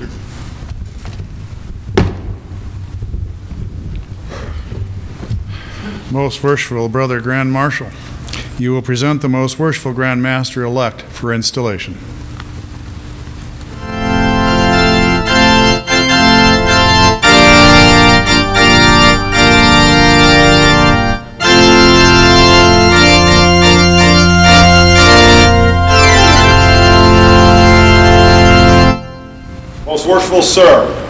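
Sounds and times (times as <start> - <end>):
organ playing held chords: 13.7 - 31.0.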